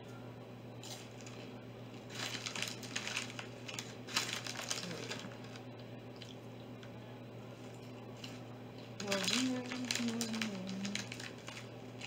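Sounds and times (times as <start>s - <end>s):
chip bag crinkling: 0.8s - 6.4s, 8.2s - 12.0s.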